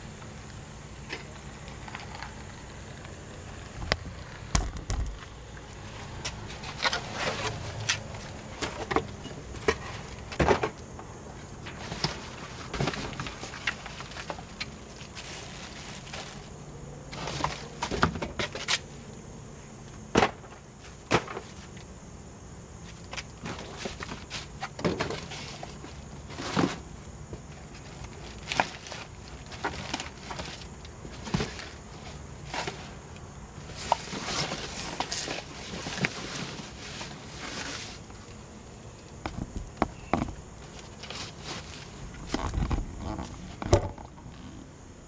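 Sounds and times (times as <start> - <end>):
rustling trash and boxes: 4.4 - 22.1, 22.7 - 44.2.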